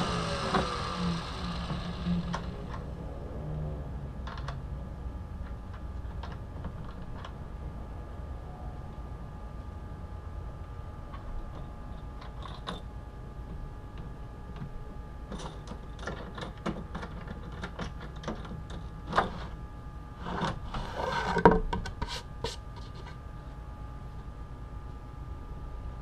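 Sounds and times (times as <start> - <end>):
wood scraping: 0.0 - 2.6.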